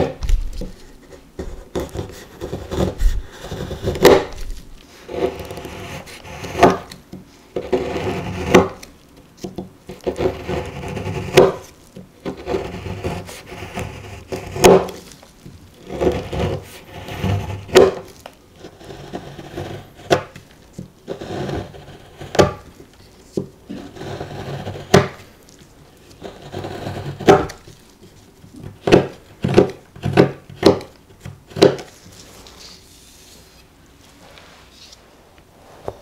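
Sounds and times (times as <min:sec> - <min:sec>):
knife scraping chocolate: 0:00.0 - 0:32.4.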